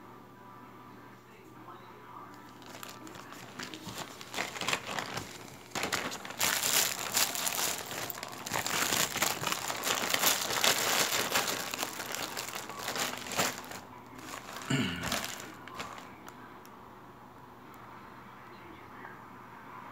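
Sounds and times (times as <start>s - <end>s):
plastic bag crinkling: 2.4s - 16.3s.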